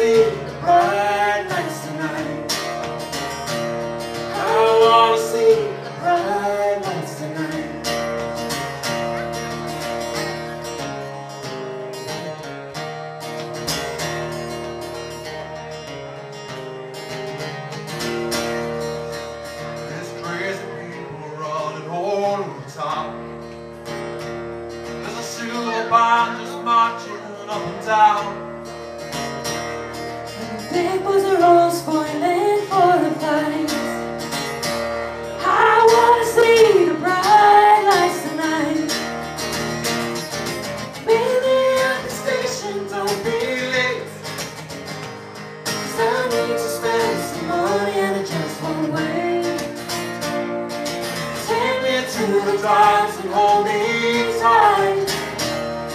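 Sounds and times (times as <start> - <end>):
acoustic guitar: 0.0 - 55.9
person singing: 4.3 - 8.0, 45.8 - 49.9, 51.4 - 55.2.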